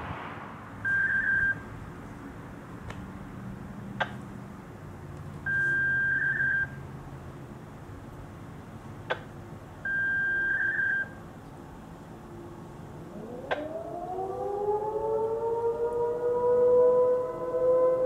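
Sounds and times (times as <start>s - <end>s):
low steady rumble: 0.0s - 14.8s
long electronic beeps: 0.8s - 1.6s.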